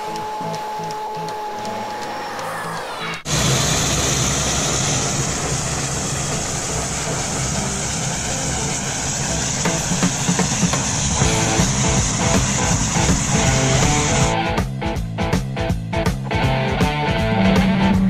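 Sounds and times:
music: 0.0 - 3.3, 6.7 - 18.0
propeller plane engine running: 0.0 - 14.4.

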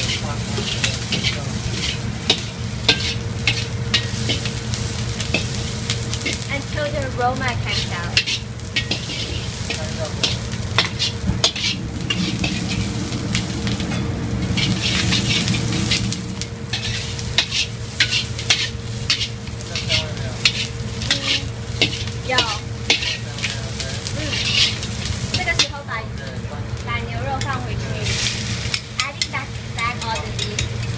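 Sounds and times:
metal spatula scraping wok: 0.0 - 6.5, 7.6 - 25.9
scallions sizzling in hot oil: 0.0 - 30.9
steady low hum: 0.0 - 30.9.

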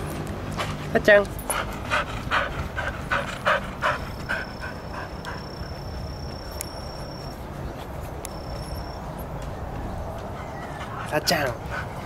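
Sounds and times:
dog panting: 0.5 - 6.0, 10.1 - 12.0.

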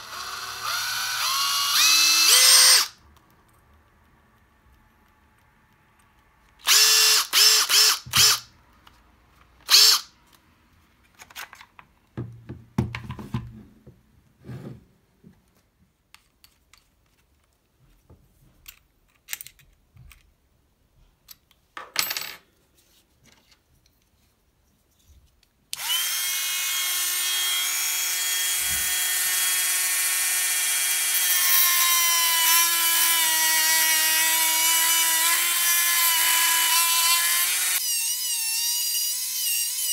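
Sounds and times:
drill cutting plastic whine: 0.0 - 2.9, 6.6 - 8.4, 9.7 - 10.0, 25.8 - 39.9
impact driver motor: 0.0 - 2.9, 6.6 - 8.4, 25.8 - 39.9.

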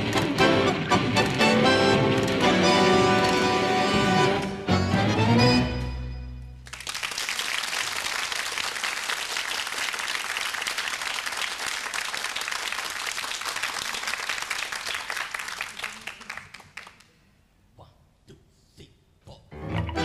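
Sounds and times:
audience applauding: 0.0 - 4.4, 6.6 - 17.1
tango ensemble of bandoneons and strings: 0.0 - 6.6, 19.6 - 20.0.

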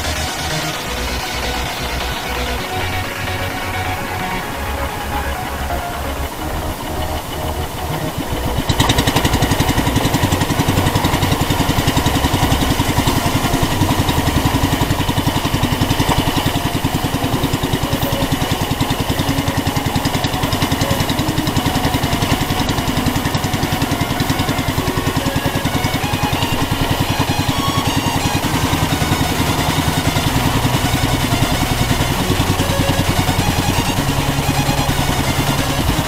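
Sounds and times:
boat engine running: 0.0 - 36.0
guitar music: 0.0 - 36.0.

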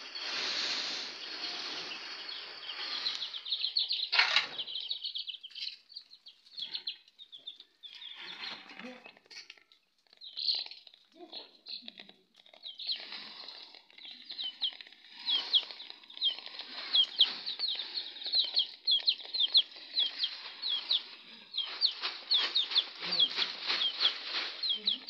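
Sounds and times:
chicks peeping: 0.0 - 25.0
rustling flapping noise: 14.8 - 25.0.

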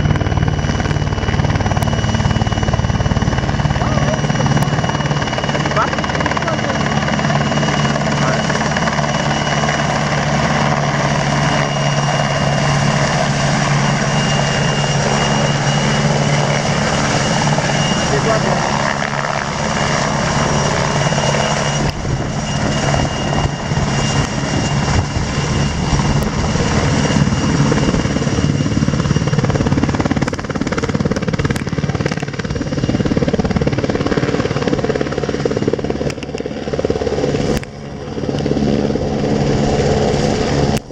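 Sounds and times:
helicopter rotors beating: 0.0 - 40.9
turbine engine whine: 0.0 - 40.9.

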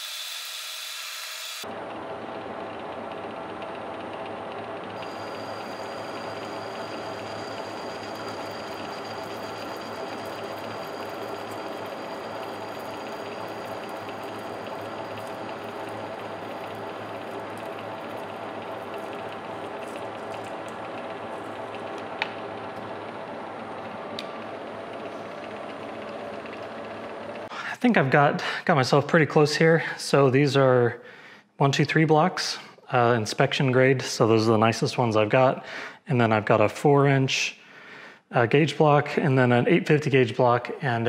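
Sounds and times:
metal lathe whirring: 0.0 - 27.5.

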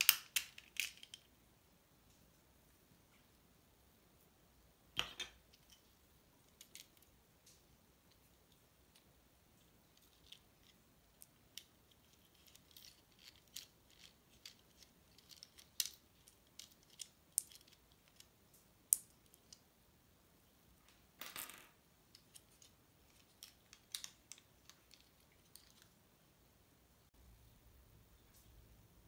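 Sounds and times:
small parts clicking and tapping: 0.0 - 1.4, 5.0 - 19.7, 20.8 - 26.0.

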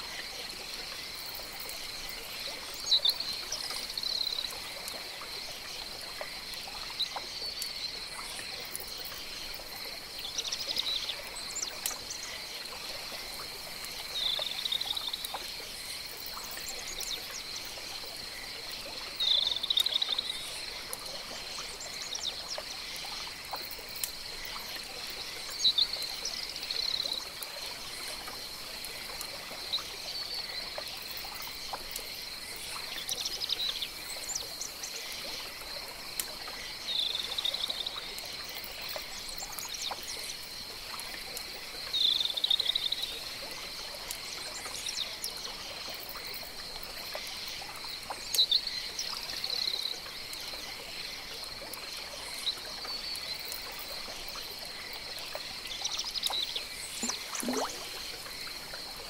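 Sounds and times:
faint trickling water: 0.0 - 59.0
high-pitched insect hum: 56.2 - 59.0.

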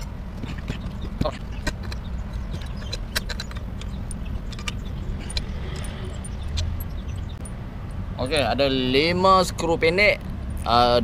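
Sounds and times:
metal bolts clinking: 0.5 - 8.0.

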